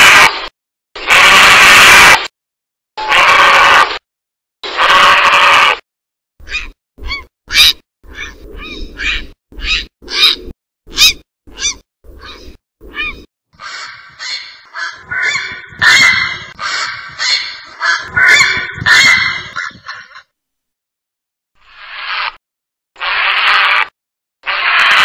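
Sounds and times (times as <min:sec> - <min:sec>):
heron croaking calls: 0:06.4 - 0:20.2.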